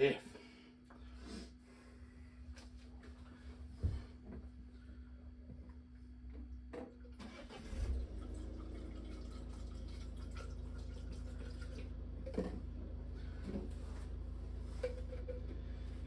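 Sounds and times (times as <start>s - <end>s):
liquid pouring into bottle: 8.4s - 11.9s.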